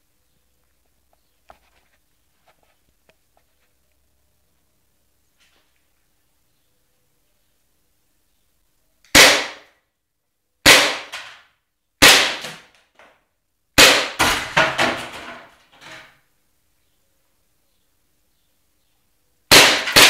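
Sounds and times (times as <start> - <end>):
airsoft pistol shots: 9.1 - 9.7, 10.6 - 11.4, 12.0 - 12.7, 13.8 - 14.6, 19.5 - 20.0.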